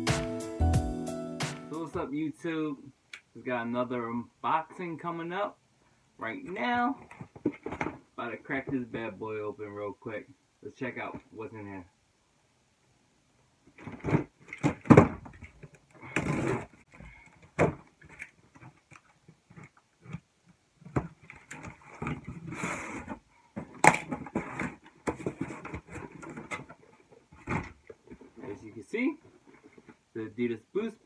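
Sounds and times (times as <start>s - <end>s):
tape and cardboard tearing: 16.0s - 16.8s.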